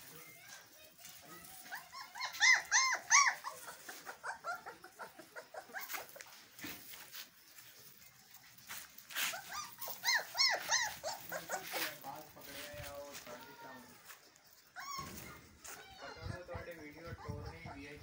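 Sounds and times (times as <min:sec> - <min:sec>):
puppies yelping and whimpering: 0:01.4 - 0:06.7, 0:07.8 - 0:18.0.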